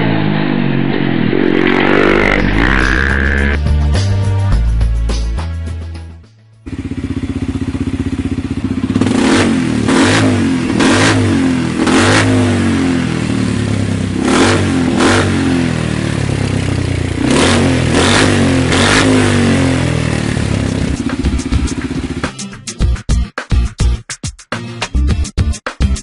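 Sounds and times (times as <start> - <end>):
quad engine revving: 1.0 - 3.6, 6.7 - 22.2.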